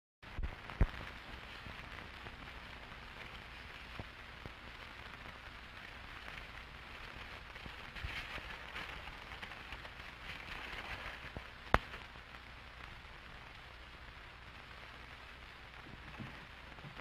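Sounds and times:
crackling film hiss: 0.2 - 17.0
sharp pops: 0.3 - 2.5, 11.3 - 12.2.

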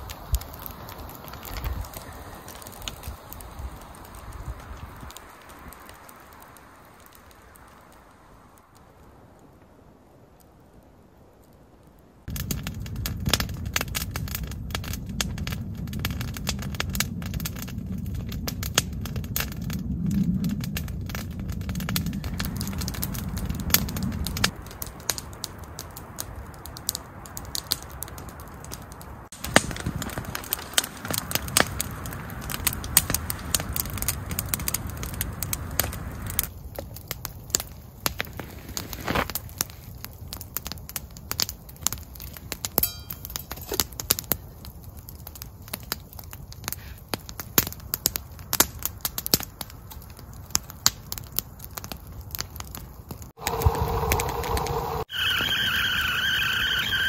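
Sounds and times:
campfire crackling and popping: 0.0 - 57.0
low steady rumble: 53.4 - 55.1.

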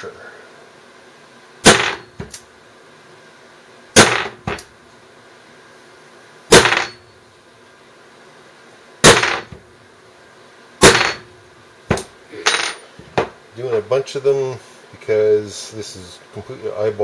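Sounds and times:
hammer striking hollow punch: 1.6 - 2.4, 4.0 - 4.6, 6.5 - 7.0, 9.0 - 9.6, 10.8 - 11.3.

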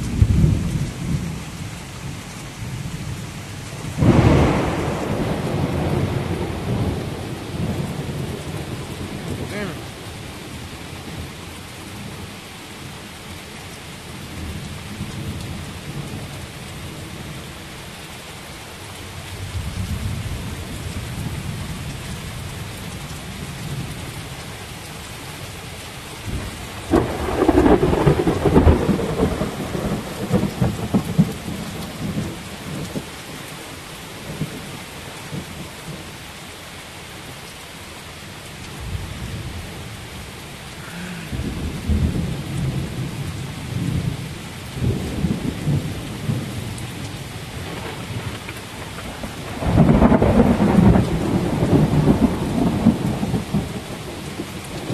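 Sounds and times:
thunder rumbling: 0.0 - 10.1, 26.3 - 33.1, 40.8 - 54.9
heavy rain pouring: 0.0 - 54.9
loud thunder crack: 4.0 - 9.6, 26.8 - 31.3, 41.2 - 43.2, 47.6 - 54.2.

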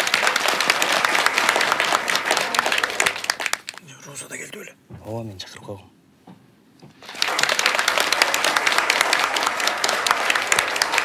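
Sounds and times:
audience applauding: 0.0 - 3.8, 6.9 - 11.0.

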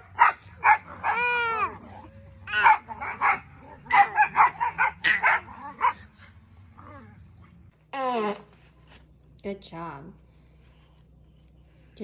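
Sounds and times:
dog barking and yipping: 0.0 - 6.1
dog whining: 0.6 - 6.1.

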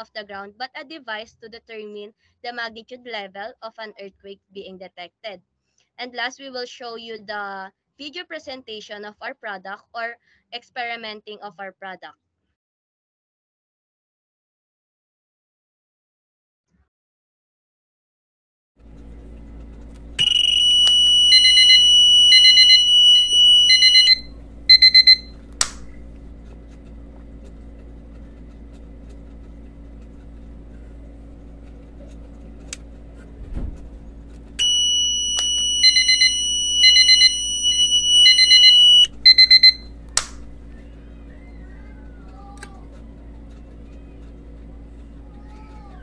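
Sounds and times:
alarm buzzer with pulsing beep: 20.2 - 25.4, 34.6 - 40.8
sharp clicks: 25.0 - 26.1, 39.5 - 40.6.

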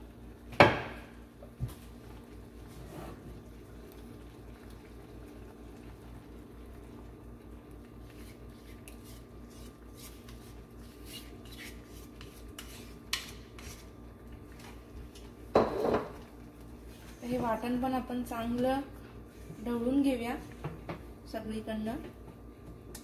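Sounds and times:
spoon scraping a bowl: 8.2 - 13.9.

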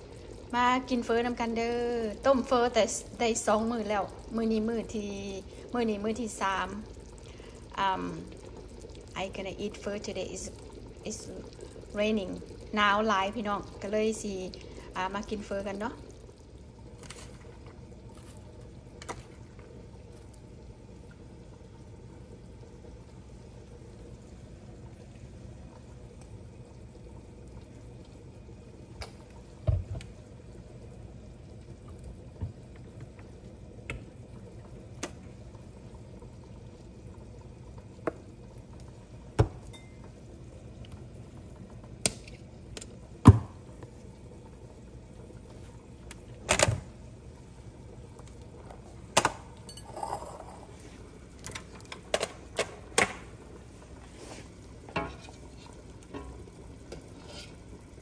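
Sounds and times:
rain hiss: 4.3 - 8.3.

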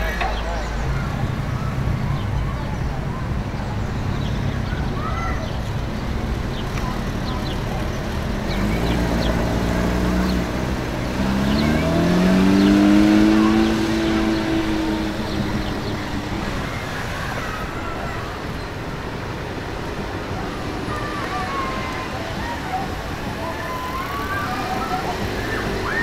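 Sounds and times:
street noise: 0.0 - 26.0
sports car engine accelerating: 6.2 - 17.6.

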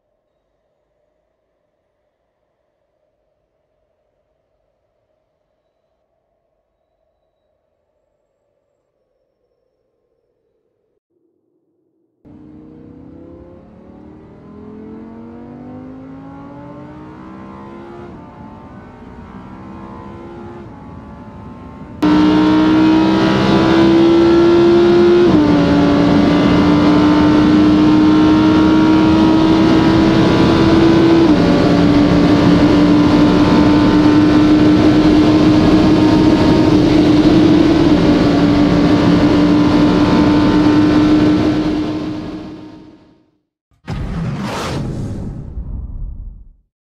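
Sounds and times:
sports car engine accelerating: 12.3 - 43.0.

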